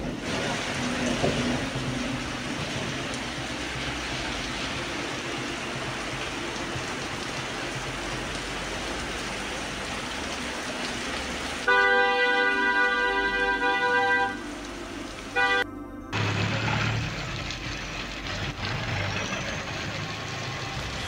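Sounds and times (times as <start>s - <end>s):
rain hissing: 0.0s - 21.0s
tyres on wet street: 0.0s - 21.0s
cars driving slowly past: 16.1s - 21.0s.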